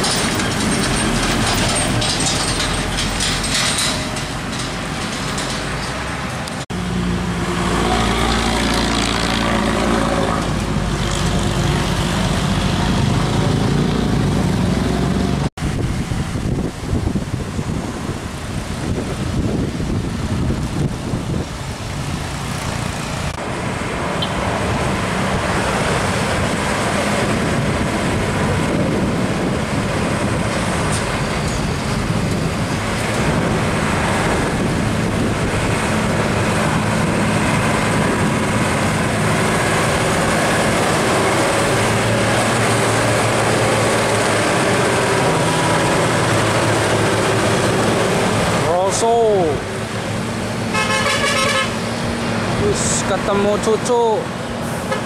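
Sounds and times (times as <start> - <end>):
diesel trucks driving past: 0.0 - 55.0
traffic noise: 0.0 - 55.0.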